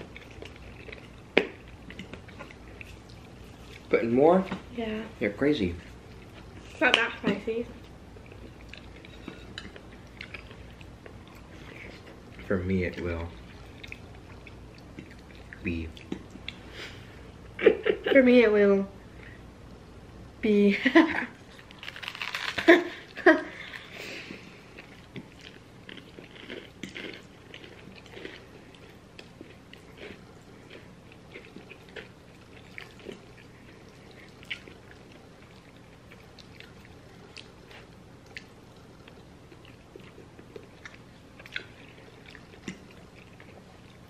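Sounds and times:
chewing and biting food: 0:00.0 - 0:03.9, 0:24.6 - 0:44.0.

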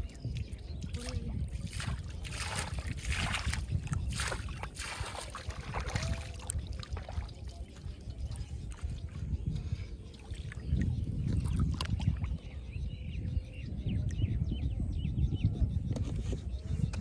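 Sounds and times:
steady low rumble: 0:00.0 - 0:17.0
pond water splashing: 0:00.9 - 0:09.0.

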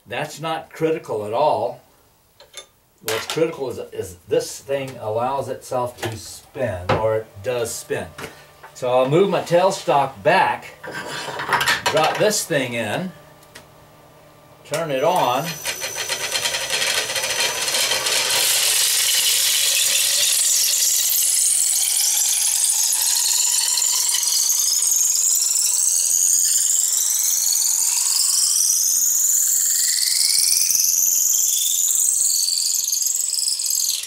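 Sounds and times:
wood lathe cutting with squeal: 0:14.7 - 0:34.0
whistling tones rising in pitch: 0:14.9 - 0:34.0.

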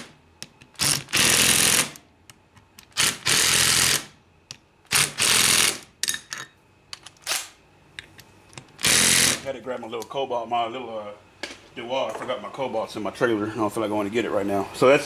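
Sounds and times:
cordless driver running: 0:08.8 - 0:09.4.

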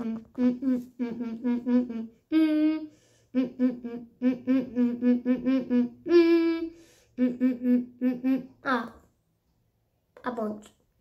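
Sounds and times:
boy humming: 0:00.0 - 0:08.8.

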